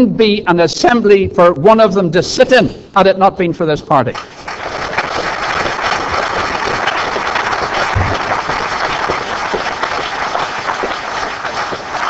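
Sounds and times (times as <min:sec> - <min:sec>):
audience applauding: 0:04.2 - 0:12.0
low thump: 0:08.0 - 0:08.2.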